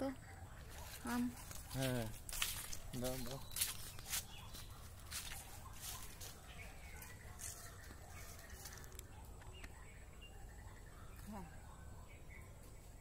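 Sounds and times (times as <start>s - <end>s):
footsteps crunching on dry leaves: 0.7s - 9.0s.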